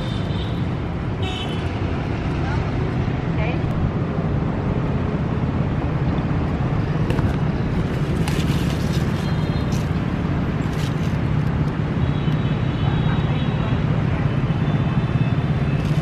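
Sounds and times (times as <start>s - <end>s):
street traffic rumble: 0.0s - 16.0s
leaves rustling: 7.0s - 11.5s.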